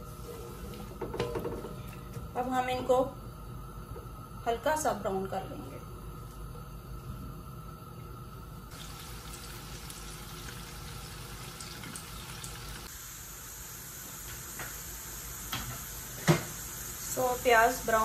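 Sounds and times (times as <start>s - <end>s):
onions sizzling in oil: 8.7s - 18.0s.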